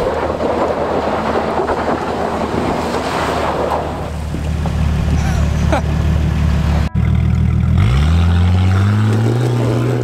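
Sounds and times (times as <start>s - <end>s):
tyres spinning in dirt: 0.0s - 6.2s
car engine running: 4.2s - 10.0s.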